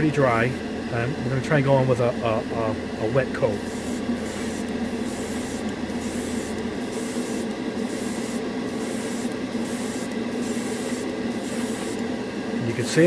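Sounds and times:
spray booth fan hum: 0.0s - 13.0s
airbrush spraying paint: 3.5s - 12.1s.

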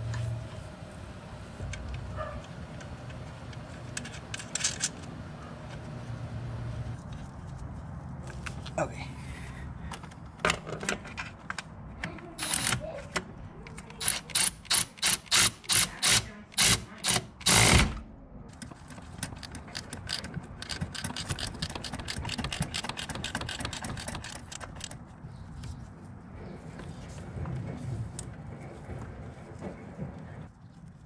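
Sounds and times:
ratcheting wrench clicking: 12.4s - 12.8s, 13.7s - 17.7s, 19.3s - 24.9s.

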